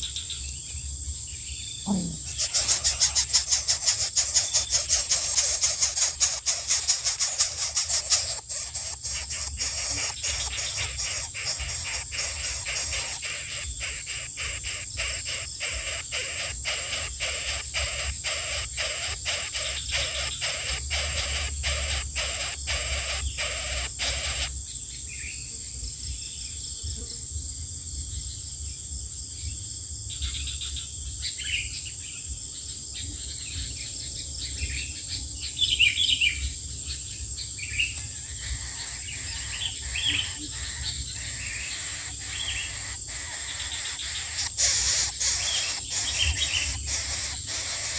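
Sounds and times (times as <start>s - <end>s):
high insect buzz: 0.0s - 27.4s, 35.6s - 47.9s
high bird chirps: 1.8s - 24.6s, 37.7s - 47.9s
music with shaker beat: 2.2s - 24.6s, 38.5s - 47.9s.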